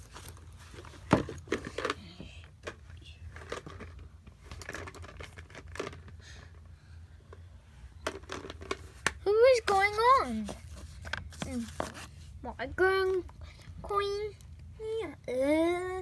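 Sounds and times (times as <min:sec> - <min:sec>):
handling clicks and rustling: 0:00.0 - 0:06.2
low steady hum: 0:00.0 - 0:16.0.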